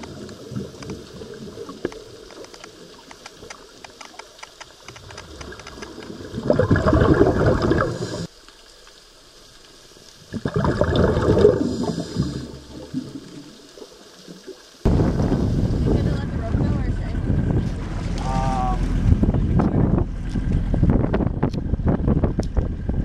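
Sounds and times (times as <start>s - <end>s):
underwater bubbles rushing: 0.0s - 3.8s, 4.7s - 8.4s, 9.0s - 23.0s
faint clicks: 0.0s - 6.2s.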